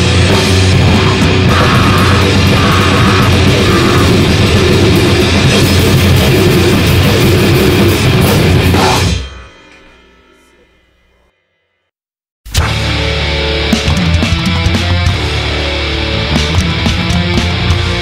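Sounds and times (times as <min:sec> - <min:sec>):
electric guitar: 0:00.0 - 0:09.3, 0:12.6 - 0:18.0
hardcore punk music: 0:00.0 - 0:11.1, 0:12.4 - 0:18.0
drum kit: 0:00.0 - 0:11.3, 0:12.5 - 0:18.0.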